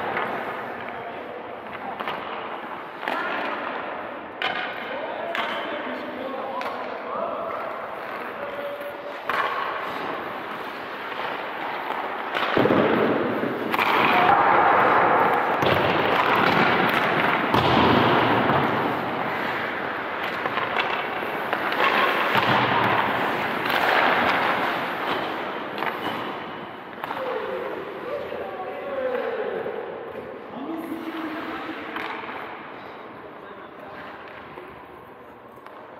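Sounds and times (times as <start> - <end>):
skates scraping ice: 0.0 - 35.9
pucks and sticks knocking: 7.5 - 27.6.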